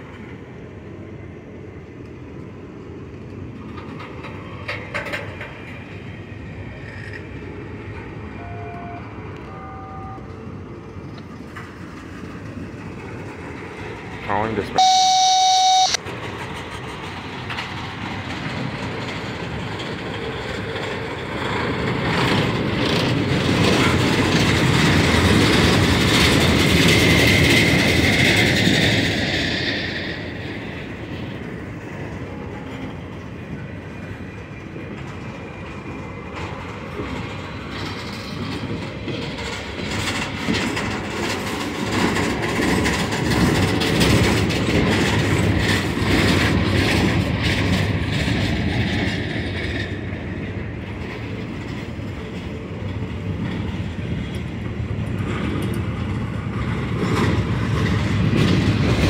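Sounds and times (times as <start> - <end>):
train wheels clicking over rail joints: 3.2 - 8.2, 16.1 - 59.0
faint high wheel squeal: 8.4 - 10.4, 14.8 - 16.0.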